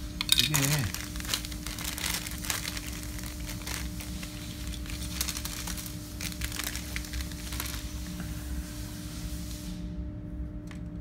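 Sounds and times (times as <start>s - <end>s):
steady low hum: 0.0s - 11.0s
plastic parts rustling and crinkling: 0.2s - 8.1s.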